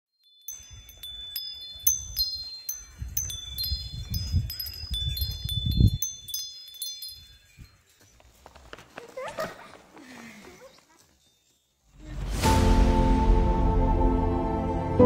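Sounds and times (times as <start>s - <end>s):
wind chimes tinkling: 0.1s - 12.2s
wind rumble on microphone: 1.8s - 6.5s.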